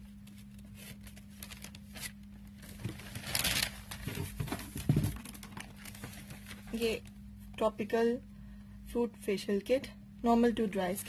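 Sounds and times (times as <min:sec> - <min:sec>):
crinkling rustle: 0:00.0 - 0:07.2
packaging rustling: 0:00.1 - 0:07.1.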